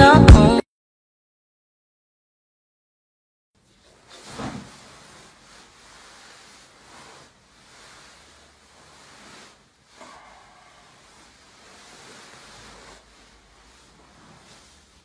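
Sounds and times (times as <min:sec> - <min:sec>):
bedsheets rustling: 0:03.6 - 0:15.0.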